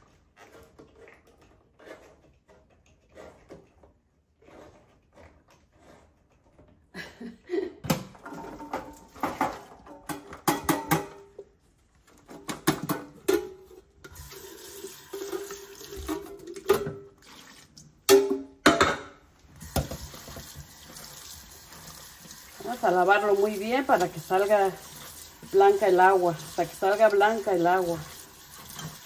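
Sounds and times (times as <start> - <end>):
metal cans clanking: 7.8 - 11.5, 12.2 - 17.2
tap water running: 12.4 - 18.4, 19.4 - 29.0.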